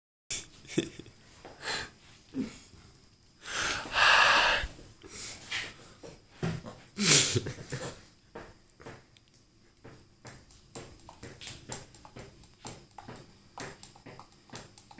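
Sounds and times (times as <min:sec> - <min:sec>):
man imitating drums with mouth: 0:03.7 - 0:04.7.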